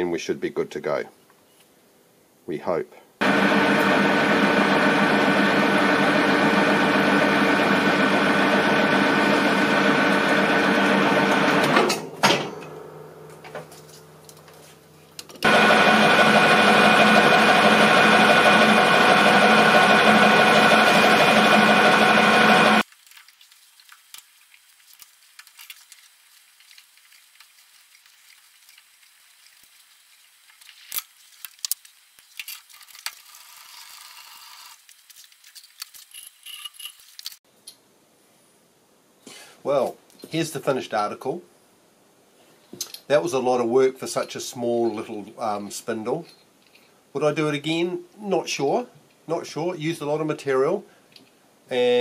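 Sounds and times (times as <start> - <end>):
metal lathe whining: 3.2 - 12.0, 15.4 - 22.8.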